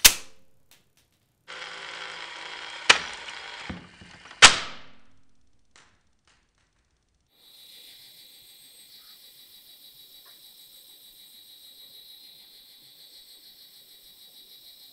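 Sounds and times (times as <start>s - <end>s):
loud ringing snap: 0.0s - 0.6s
toy motor whirring: 1.5s - 4.4s
faint high-pitched pulsing: 7.2s - 14.9s.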